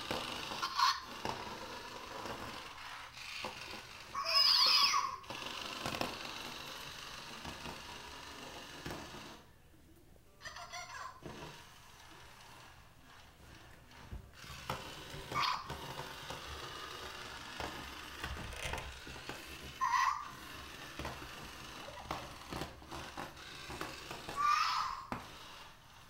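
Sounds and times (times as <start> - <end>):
clicks and taps on tile floor: 20.6 - 25.6.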